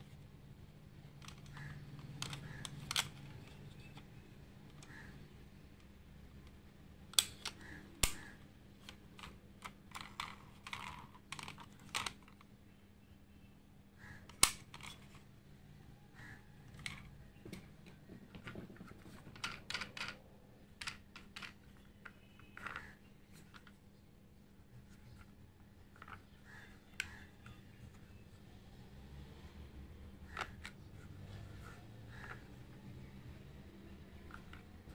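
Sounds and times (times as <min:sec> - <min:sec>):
toy cars clicking and tapping: 0:01.1 - 0:05.2, 0:06.4 - 0:12.5, 0:16.2 - 0:23.8, 0:30.2 - 0:33.0, 0:34.0 - 0:34.9.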